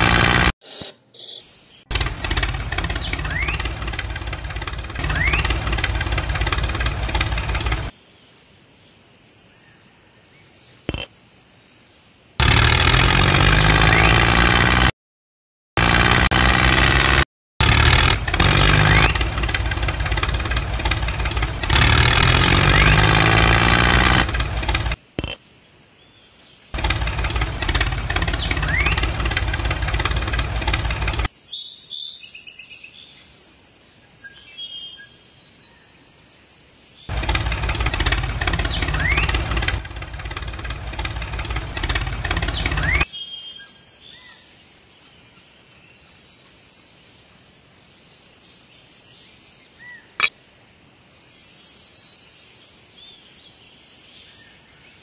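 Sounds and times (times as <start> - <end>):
engine running: 0.0 - 0.9, 1.9 - 7.9, 12.4 - 15.0, 15.8 - 25.4, 26.8 - 31.3, 37.1 - 43.1
sharp click: 25.1 - 25.4
birds chirping faintly: 35.6 - 47.2.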